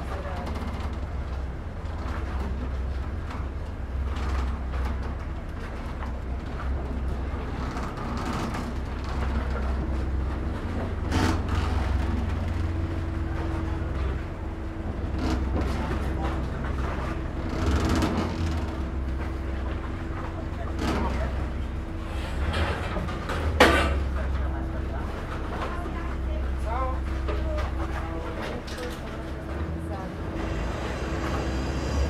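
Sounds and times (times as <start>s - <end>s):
boat diesel engine rumbling: 0.0s - 32.0s.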